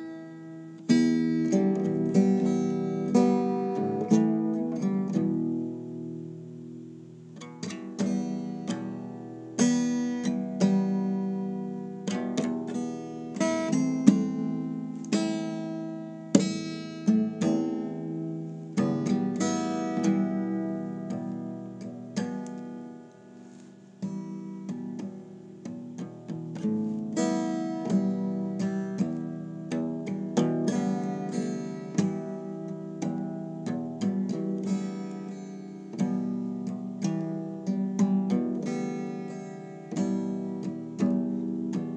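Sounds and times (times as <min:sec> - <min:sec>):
acoustic guitar playing: 0:00.0 - 0:41.9.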